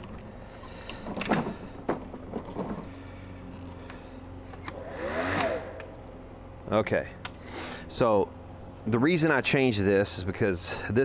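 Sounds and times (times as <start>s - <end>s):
brief rising and falling tone: 4.6s - 6.4s.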